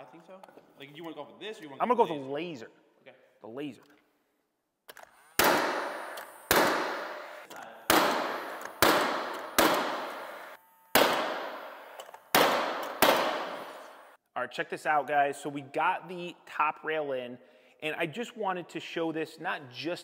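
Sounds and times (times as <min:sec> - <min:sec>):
nail gun shots ringing: 0:05.3 - 0:14.1.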